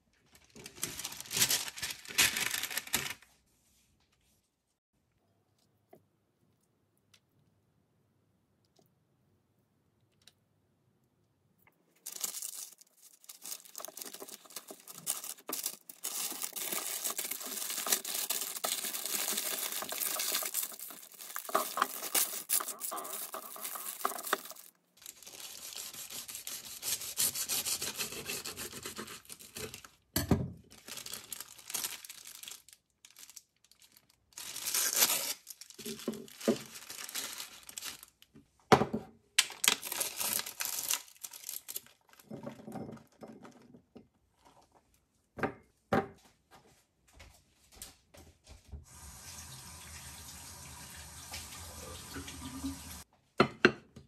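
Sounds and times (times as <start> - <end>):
crinkling handling noise: 0.0 - 4.4, 11.6 - 38.6, 39.4 - 45.1.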